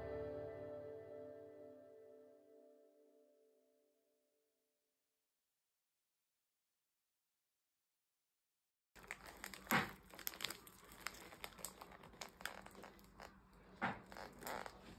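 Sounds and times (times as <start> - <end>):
wrapping paper crinkling: 9.0 - 14.9.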